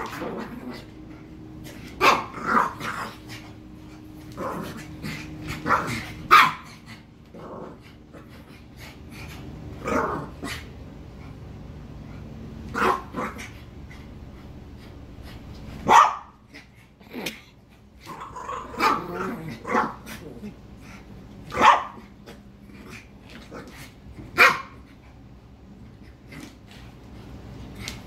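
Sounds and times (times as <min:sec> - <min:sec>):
dogs growling: 0:00.0 - 0:11.4, 0:16.4 - 0:21.3, 0:22.0 - 0:25.1
small dogs barking: 0:02.0 - 0:03.1, 0:05.6 - 0:06.9, 0:12.7 - 0:13.6, 0:15.8 - 0:16.6, 0:18.1 - 0:20.2, 0:21.5 - 0:22.1, 0:24.3 - 0:24.8.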